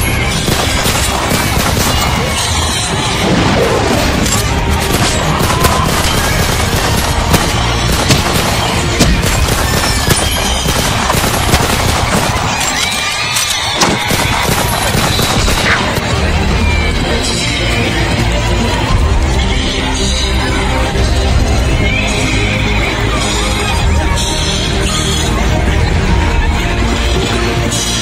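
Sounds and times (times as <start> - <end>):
loud music: 0.0 - 28.0.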